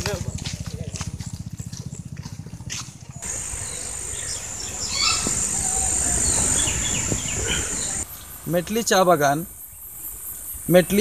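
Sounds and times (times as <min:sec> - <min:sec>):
small engine running: 0:00.0 - 0:05.0
insects droning: 0:00.0 - 0:11.0
bird chirps: 0:03.2 - 0:11.0.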